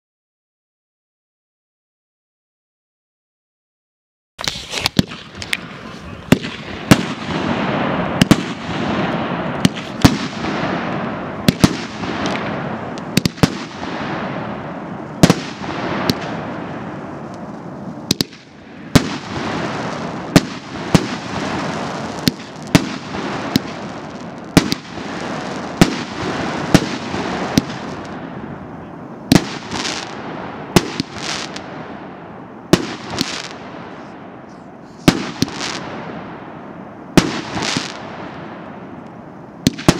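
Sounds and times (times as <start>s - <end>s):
crackling bursting stars: 4.4s - 35.9s
fireworks sharp cracks: 4.4s - 39.9s.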